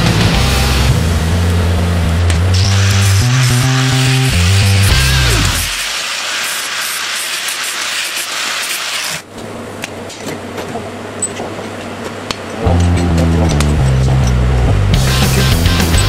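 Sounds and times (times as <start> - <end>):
angle grinder cutting steel: 2.5 - 9.2.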